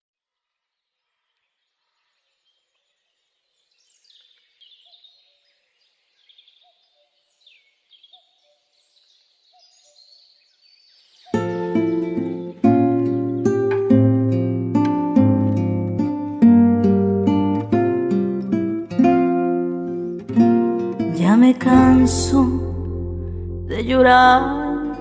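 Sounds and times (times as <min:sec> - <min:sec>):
faint birdsong whistles: 0:01.1 - 0:11.6.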